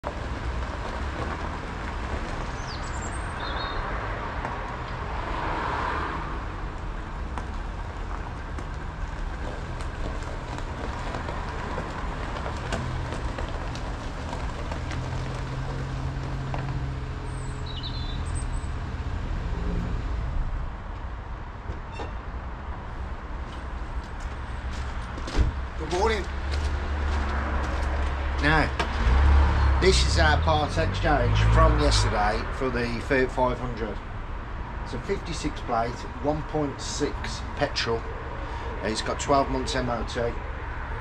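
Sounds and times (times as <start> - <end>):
bird chirping: 2.6 - 3.9, 17.3 - 18.8.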